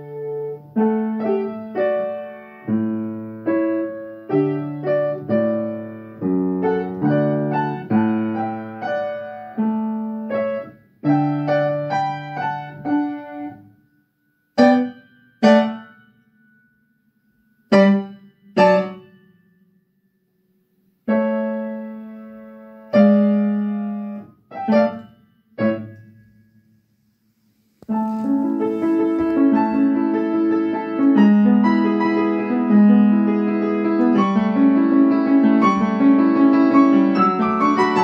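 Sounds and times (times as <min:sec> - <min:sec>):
upright piano classical piece: 0:00.0 - 0:13.7, 0:14.6 - 0:16.0, 0:17.7 - 0:19.1, 0:21.0 - 0:26.1, 0:27.8 - 0:38.0.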